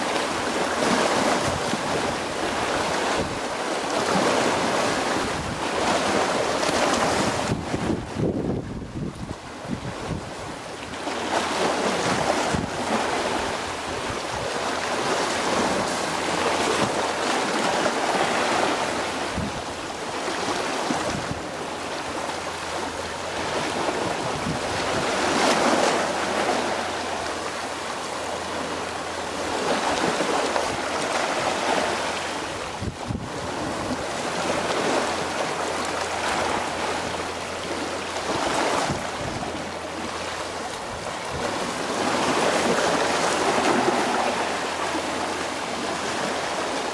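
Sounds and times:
small waves washing on shore: 0.0s - 46.9s
wind buffeting microphone: 4.1s - 10.6s, 19.0s - 19.8s, 23.4s - 25.8s, 29.7s - 35.5s, 38.3s - 40.1s.

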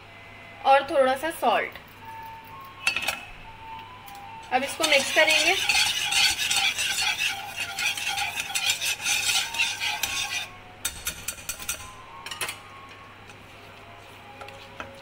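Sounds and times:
whisk scraping a pan: 4.6s - 11.9s.

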